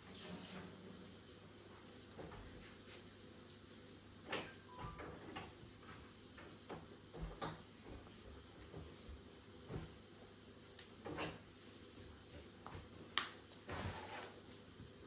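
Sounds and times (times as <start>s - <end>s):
faint taps and knocks of items: 5.0s - 10.0s.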